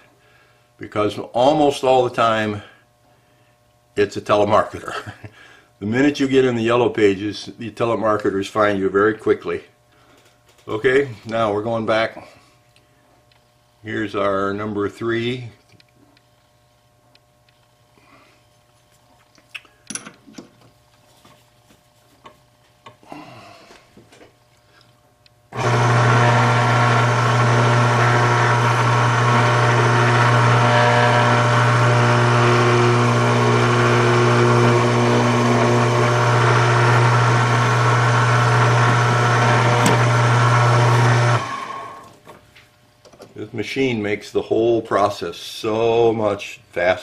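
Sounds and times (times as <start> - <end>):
electric motor humming: 25.5 - 42.1.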